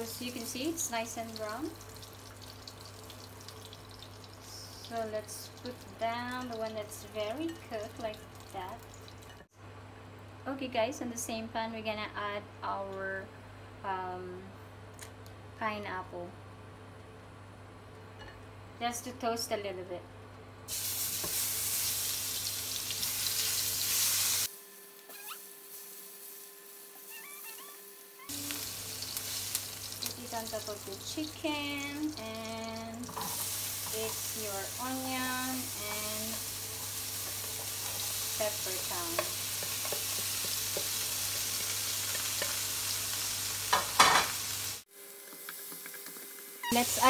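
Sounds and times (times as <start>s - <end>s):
fruit sizzling in hot oil: 0.0s - 9.5s, 20.7s - 47.0s.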